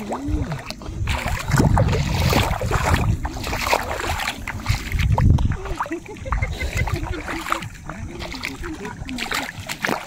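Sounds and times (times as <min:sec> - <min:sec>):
feet wading through shallow water: 0:00.0 - 0:10.0
wind rumbling on microphone: 0:00.0 - 0:10.0.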